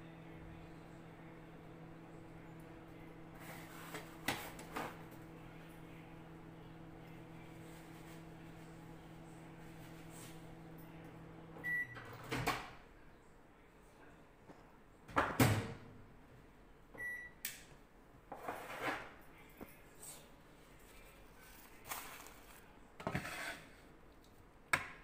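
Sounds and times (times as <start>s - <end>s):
microwave oven humming: 0.0s - 13.0s, 15.4s - 18.0s
microwave short beep: 11.6s - 12.0s, 17.0s - 17.4s.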